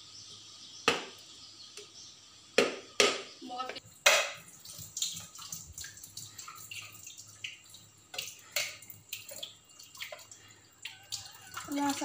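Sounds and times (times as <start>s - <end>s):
machete striking coconut: 2.6s - 3.3s
water dripping into sink: 3.6s - 12.0s.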